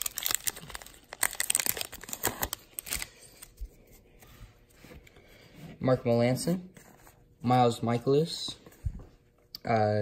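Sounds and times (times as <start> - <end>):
wrapper crinkling: 0.0 - 3.5.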